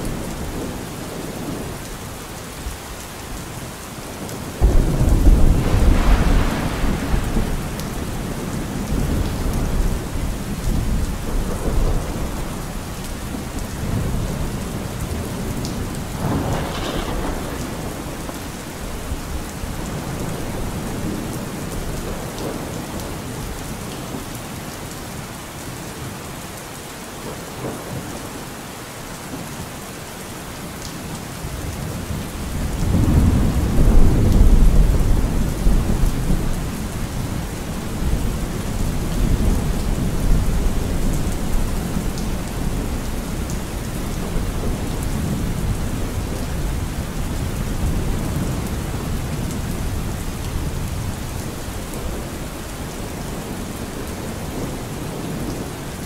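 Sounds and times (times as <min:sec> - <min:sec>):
steady rain: 0:00.0 - 0:56.0
thunder rumbling: 0:04.2 - 0:23.6, 0:31.7 - 0:55.5.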